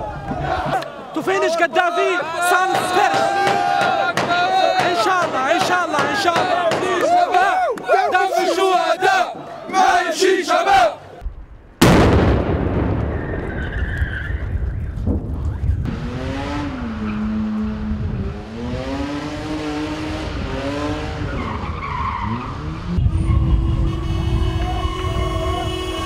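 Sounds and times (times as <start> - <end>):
firework bang: 11.2 - 15.3
car tyres squealing: 13.2 - 15.7, 16.8 - 17.6, 20.6 - 26.0
car horn: 22.2 - 26.0.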